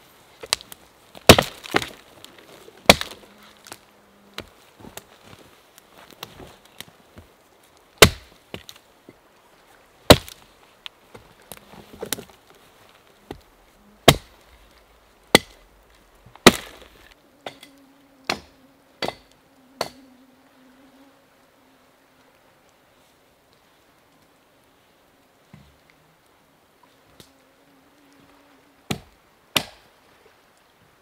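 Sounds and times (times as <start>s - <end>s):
axe chopping log: 1.2s - 2.0s, 2.8s - 3.2s, 8.0s - 8.7s, 10.1s - 10.4s, 14.0s - 14.4s, 15.3s - 15.6s, 16.4s - 17.6s, 18.3s - 20.0s, 28.9s - 29.8s
insect buzzing: 17.0s - 22.8s, 27.0s - 28.9s.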